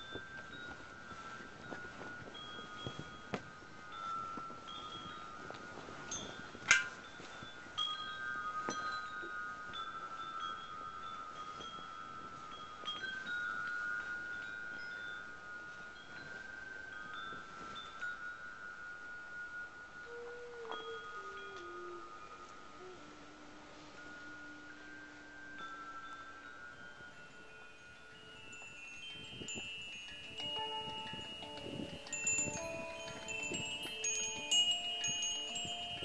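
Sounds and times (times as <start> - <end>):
chimes ringing: 24.0 - 36.0.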